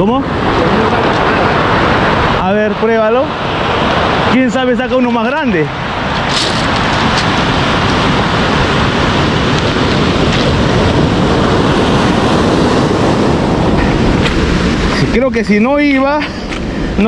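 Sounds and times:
wind on microphone: 0:00.0 - 0:17.0
surf breaking on pebble beach: 0:05.9 - 0:15.5.

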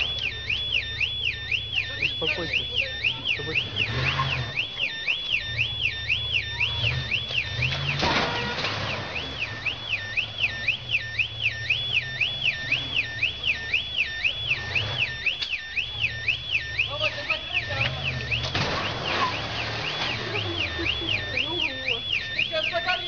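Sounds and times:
car alarm siren: 0:00.0 - 0:23.0.

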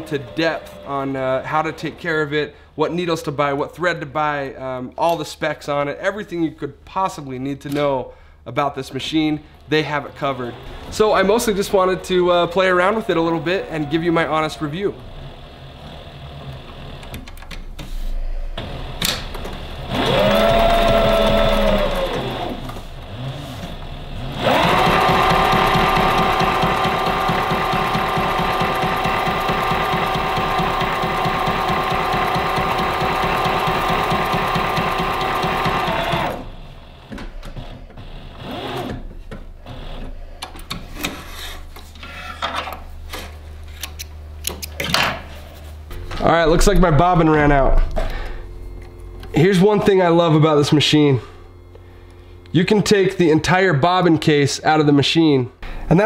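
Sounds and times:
sewing machine stitching leather: 0:00.0 - 0:02.0, 0:10.0 - 0:17.3, 0:18.6 - 0:40.2.

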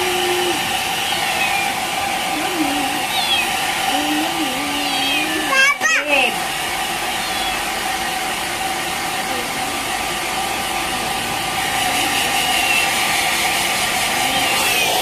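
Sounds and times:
hair dryer running: 0:00.0 - 0:15.0.

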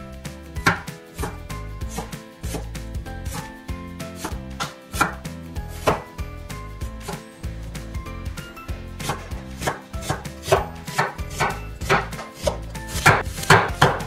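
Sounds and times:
knife chopping onion on wooden board: 0:00.6 - 0:03.5, 0:04.2 - 0:06.2, 0:09.0 - 0:14.0.

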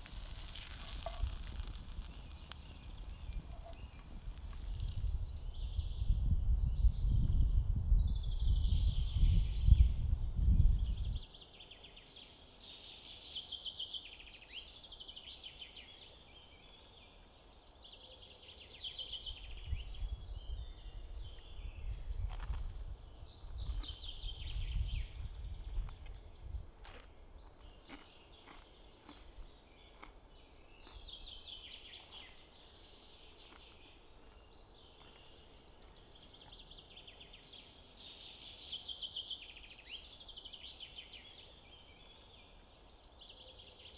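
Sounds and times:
short crisp crunches: 0:00.0 - 0:05.1.

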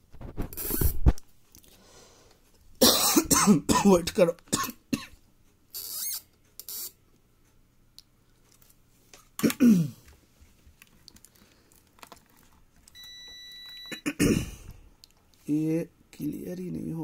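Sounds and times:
soft clicks and handling noises: 0:06.4 - 0:14.0.

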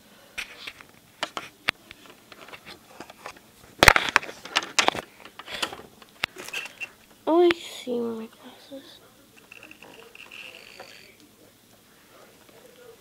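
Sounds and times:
plastic toys clicking and tapping: 0:09.4 - 0:11.3.

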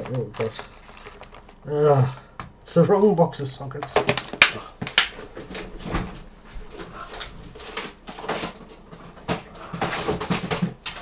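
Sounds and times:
plastic boxes rattling and clicking: 0:00.0 - 0:01.6, 0:03.8 - 0:05.6, 0:07.1 - 0:11.0.

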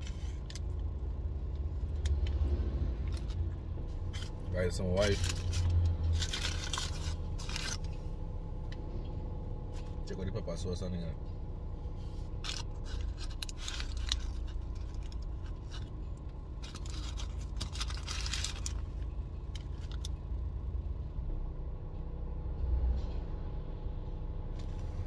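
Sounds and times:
low steady hum: 0:00.0 - 0:25.0
paper wrapping crinkling: 0:04.0 - 0:07.9, 0:12.3 - 0:16.0, 0:16.6 - 0:19.0.

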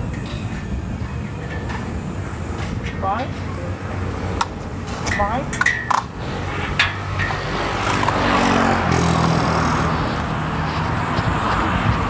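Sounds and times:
road noise: 0:00.0 - 0:12.0
vehicle engine passing: 0:06.1 - 0:12.0.

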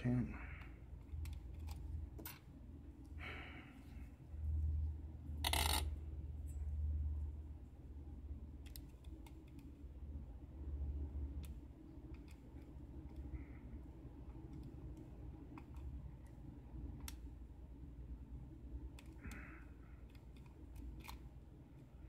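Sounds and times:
lock pick clicking and scraping: 0:01.0 - 0:02.4, 0:05.4 - 0:05.9, 0:20.0 - 0:21.3.

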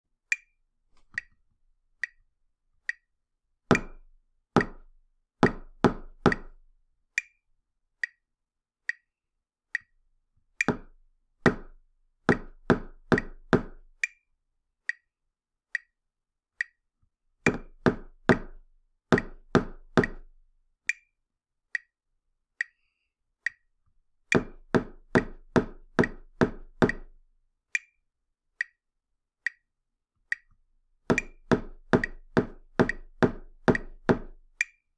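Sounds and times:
steady click beat: 0:03.7 - 0:07.4, 0:10.6 - 0:14.2, 0:17.5 - 0:21.1, 0:24.3 - 0:27.2, 0:29.5 - 0:29.7, 0:31.1 - 0:34.9.

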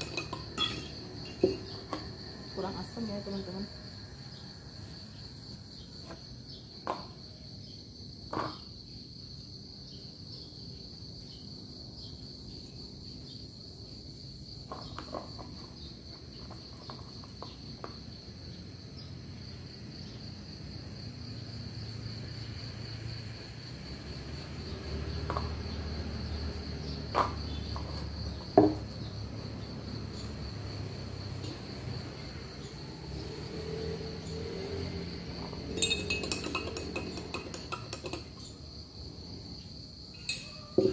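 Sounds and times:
high-pitched insect trill: 0:00.0 - 0:40.9
knife and lemon knocking on table: 0:28.6 - 0:28.8.

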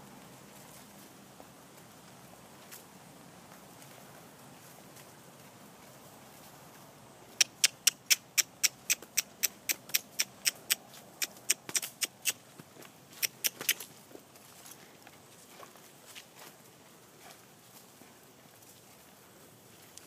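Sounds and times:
tongue clicking: 0:07.4 - 0:12.4, 0:13.2 - 0:13.8.

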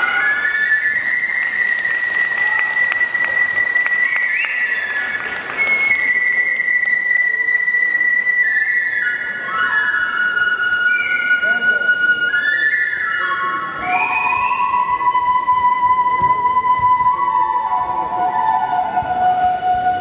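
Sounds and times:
bamboo flute playing high held notes: 0:00.0 - 0:20.0.

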